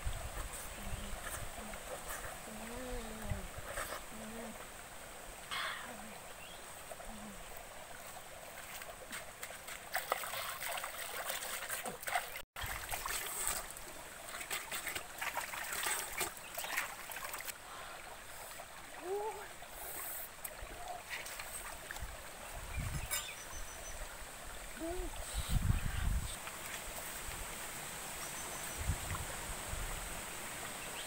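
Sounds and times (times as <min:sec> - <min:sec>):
stream running over rocks: 0:00.0 - 0:31.0
water splashing and dripping: 0:06.7 - 0:23.5
feet stepping into water: 0:08.4 - 0:17.6.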